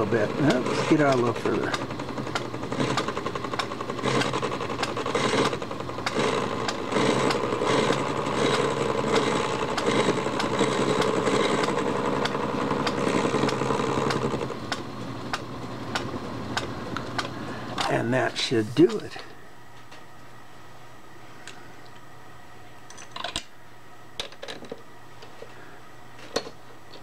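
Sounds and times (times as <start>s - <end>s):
metal lathe machining: 0.0s - 17.3s.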